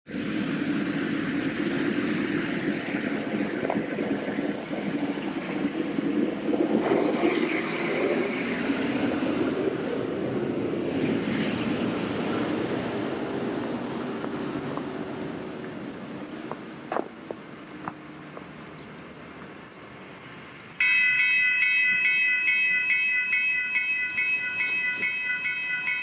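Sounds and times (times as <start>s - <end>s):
diesel locomotives rumbling: 0.1s - 26.0s.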